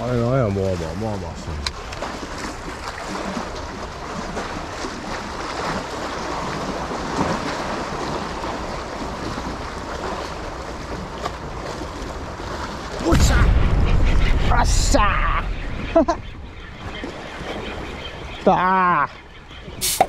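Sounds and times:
sea water washing: 0.0s - 20.0s
wind on microphone: 13.0s - 17.5s.

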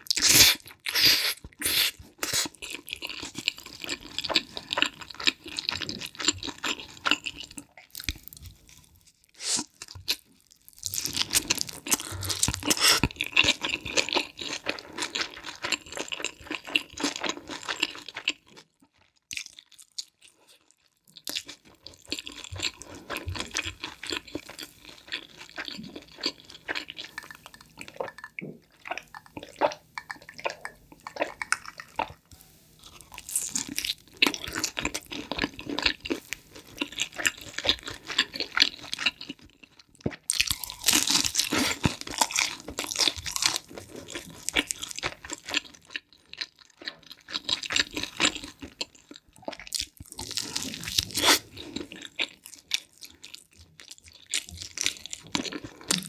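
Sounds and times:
chewing and crunching pizza crust: 0.0s - 56.0s.

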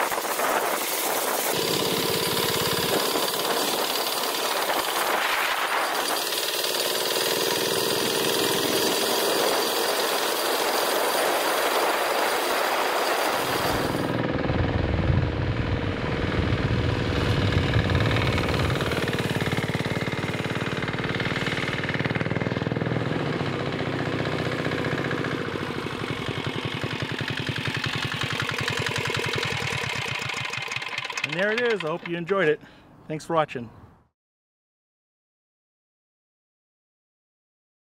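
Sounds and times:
wind hiss: 0.0s - 6.8s
diesel engine knocking: 15.8s - 32.2s.

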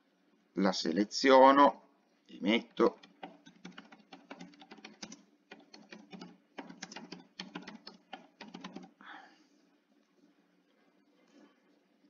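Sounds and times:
computer keyboard typing: 2.7s - 9.0s.

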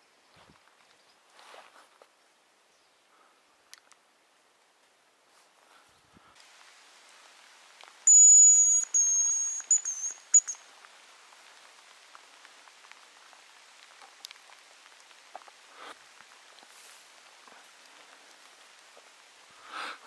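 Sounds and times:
light rain pattering: 0.0s - 20.0s
small clicks: 3.7s - 4.0s, 13.7s - 15.6s
high decoy whistle: 8.0s - 10.6s.

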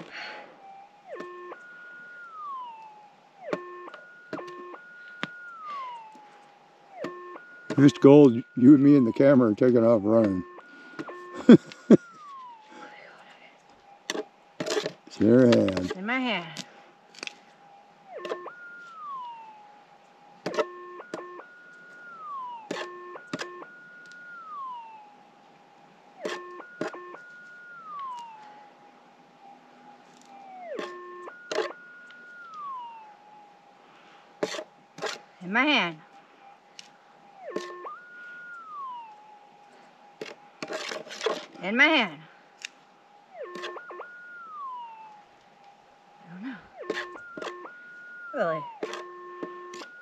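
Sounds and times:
metal detector electronic tone: 1.1s - 6.2s, 6.9s - 12.6s, 14.1s - 16.6s, 18.1s - 19.5s, 20.4s - 25.1s, 26.2s - 28.5s, 30.5s - 33.0s, 37.4s - 39.2s, 43.4s - 45.2s, 46.3s - 50.0s.

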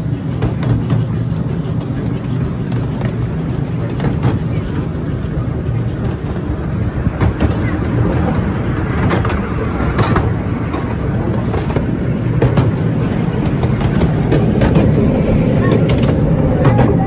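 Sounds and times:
train carriages rumbling: 0.0s - 17.0s
wheels clicking over rail joints: 0.0s - 17.0s.

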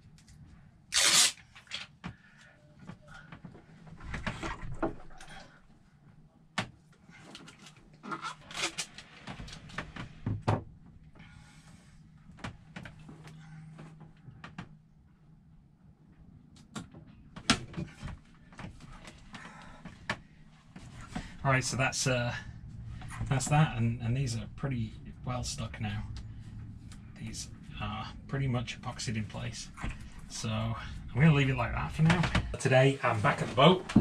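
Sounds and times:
rustles of wiring and tape: 0.0s - 5.4s, 6.9s - 11.2s
faint low hum: 0.0s - 34.0s.

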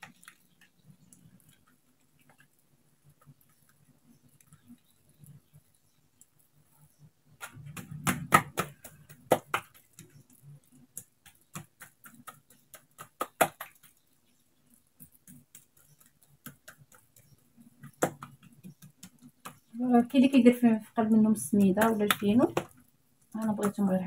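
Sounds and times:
hands slapping dough on countertop: 7.4s - 10.0s, 10.9s - 14.0s, 15.1s - 19.7s, 21.5s - 22.8s.

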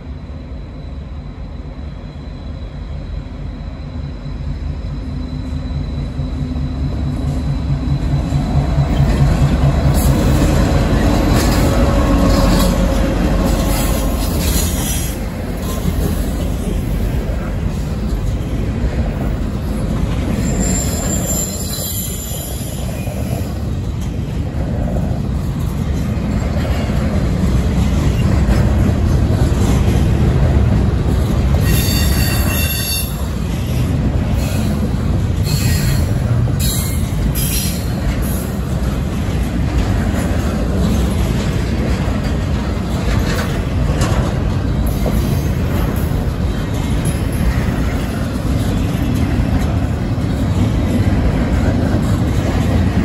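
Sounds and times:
train wheels squealing: 0.0s - 18.4s, 19.2s - 23.8s, 31.5s - 38.8s
freight train wheels rumbling on rail: 0.0s - 53.0s.

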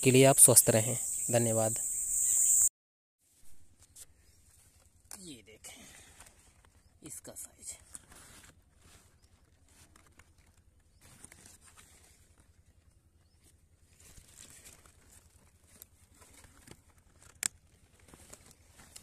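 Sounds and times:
rustling of cauliflower leaves: 7.8s - 19.0s.

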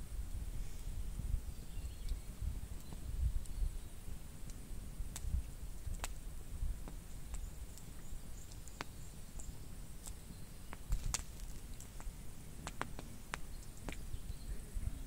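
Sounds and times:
campfire crackling: 0.0s - 15.0s
sharp fire pops: 2.1s - 14.2s.

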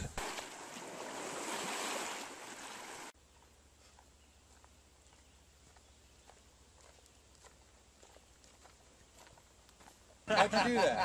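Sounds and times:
footsteps on leafy dirt trail: 3.4s - 10.3s.

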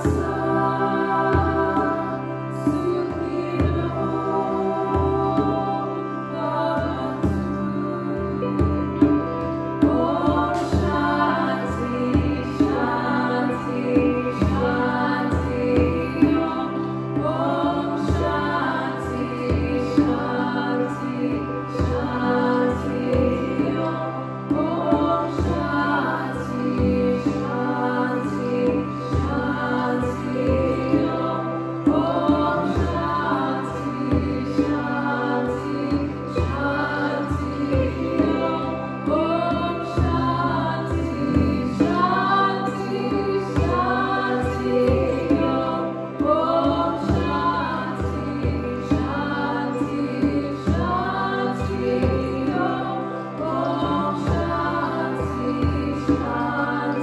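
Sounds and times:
harmonium drone: 0.0s - 57.0s
woman chanting: 0.0s - 57.0s.

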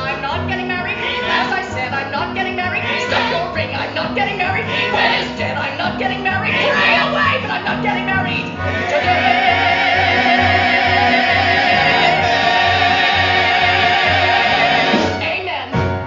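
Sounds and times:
person singing with vibrato: 0.0s - 15.6s.

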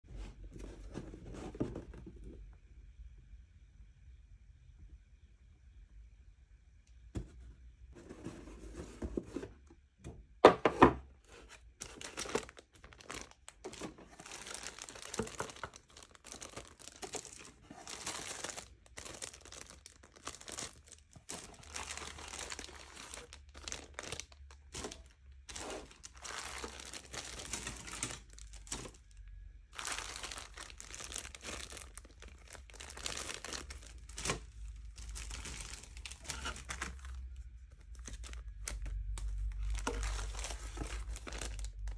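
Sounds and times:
plastic bags crinkling: 11.3s - 41.9s.

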